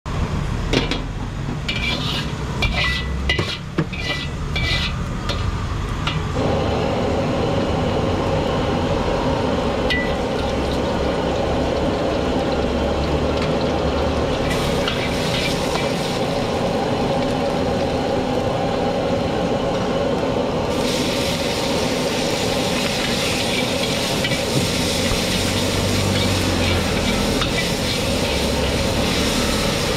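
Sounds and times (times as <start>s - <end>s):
gas burner rumble: 0.1s - 29.9s
oil and garlic sizzling: 1.7s - 19.6s, 20.6s - 29.9s.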